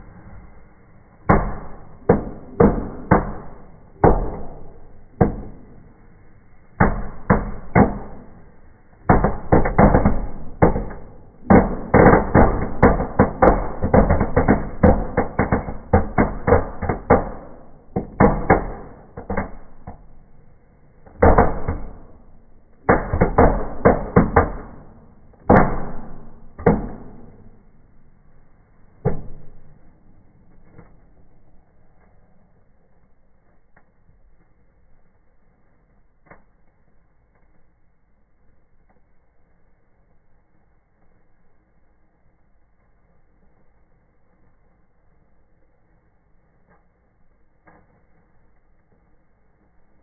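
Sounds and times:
firecrackers banging: 0.0 - 34.4.

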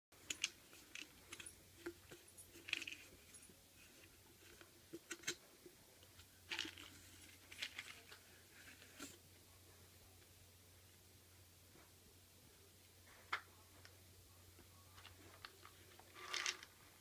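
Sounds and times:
snack puffs rattling in plastic canister: 15.4 - 16.7.

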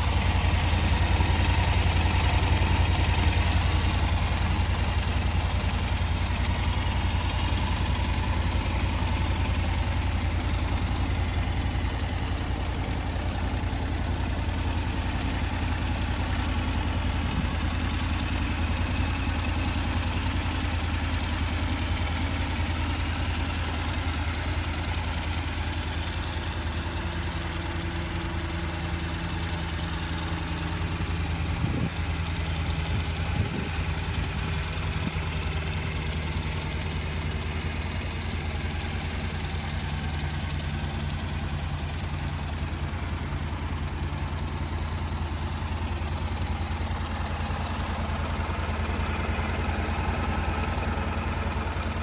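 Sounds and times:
motorcycle engine idling: 0.0 - 52.0.

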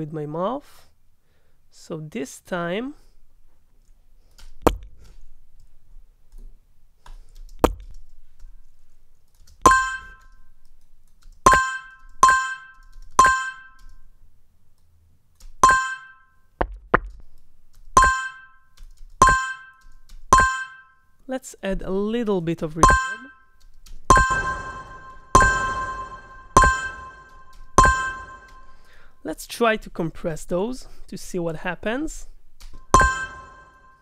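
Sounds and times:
synthesized notification ding: 22.8 - 23.4, 24.1 - 28.7, 32.9 - 34.0.

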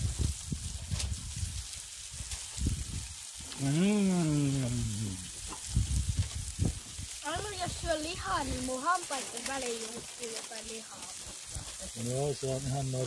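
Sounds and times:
wind on microphone: 0.0 - 8.8
person making wordless sound: 3.4 - 5.3.

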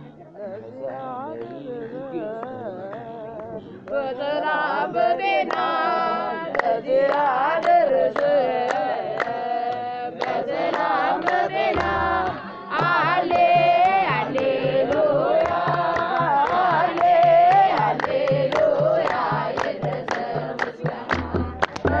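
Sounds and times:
person singing ornamented melody: 0.0 - 10.3
musical accompaniment: 10.2 - 22.0
steady low beat: 11.5 - 22.0.

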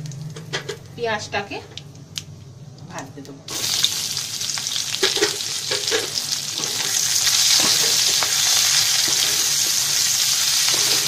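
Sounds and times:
onions sizzling in hot oil: 3.5 - 11.0.

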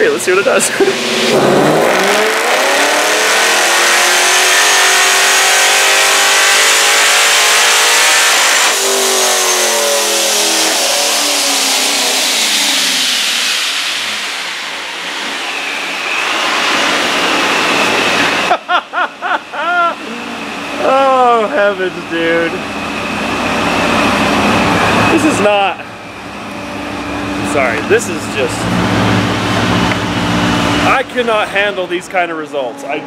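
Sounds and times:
car engine revving: 0.0 - 33.0
supercharger whine: 0.0 - 33.0.

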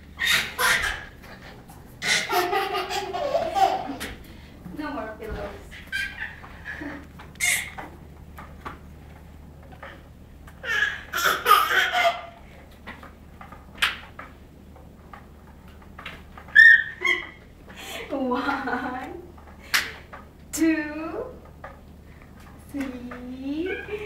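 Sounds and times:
faint room hum: 0.0 - 24.0
baby squealing and giggling: 0.2 - 1.2, 5.7 - 6.8, 7.4 - 7.8, 16.5 - 17.4.

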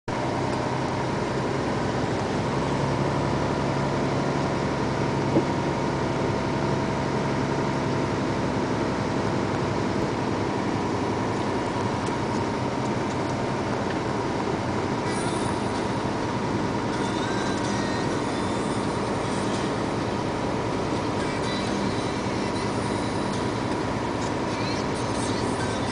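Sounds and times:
vehicle engine and tyre drone: 0.1 - 25.9.

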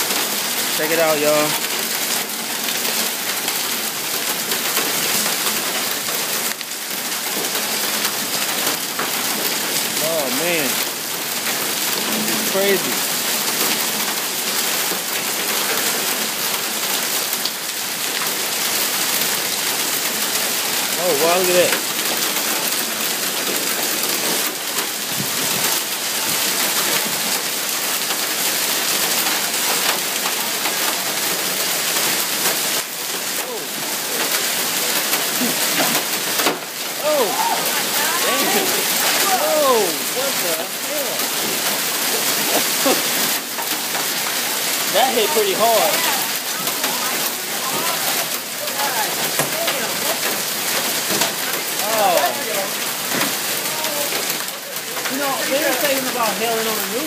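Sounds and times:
hail and heavy rain pelting: 0.0 - 57.0.

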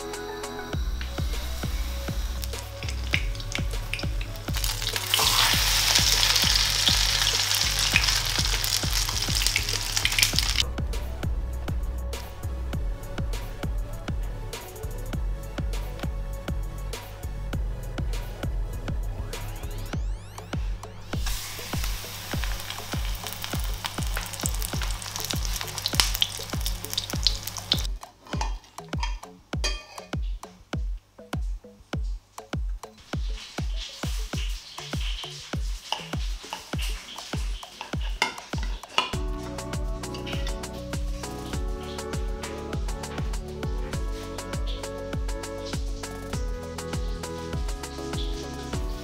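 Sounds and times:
background music with beat: 0.0 - 49.0
meat sizzling in oil: 1.6 - 10.6, 21.2 - 27.9, 33.0 - 42.0.

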